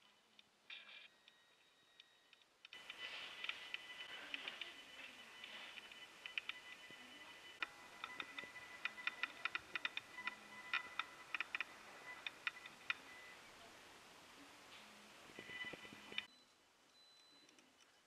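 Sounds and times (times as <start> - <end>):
irregular clicking and ticking: 0.0 - 13.4
faint steady high tone: 0.0 - 18.0.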